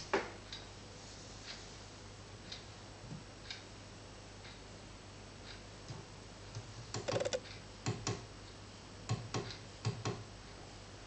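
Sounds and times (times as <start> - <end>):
faint steady hum: 0.0 - 9.1
sharp irregular clicks: 7.0 - 7.4.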